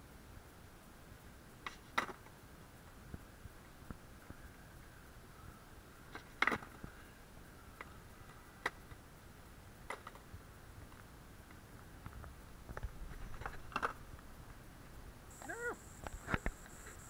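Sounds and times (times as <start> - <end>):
skateboard clacking on concrete: 1.6 - 2.3, 6.1 - 6.8, 9.8 - 10.3, 12.8 - 14.0.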